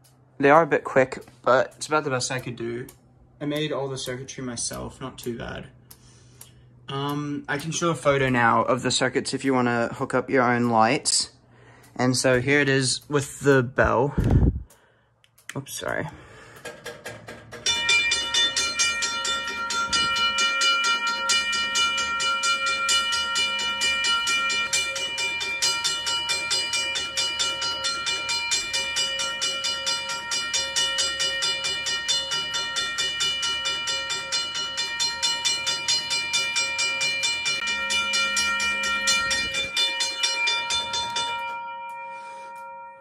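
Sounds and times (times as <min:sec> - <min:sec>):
railway crossing bell ringing: 0:17.6 - 0:43.0.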